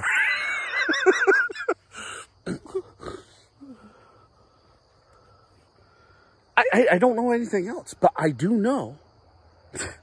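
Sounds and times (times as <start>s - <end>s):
man laughing muffled: 0.0s - 3.2s.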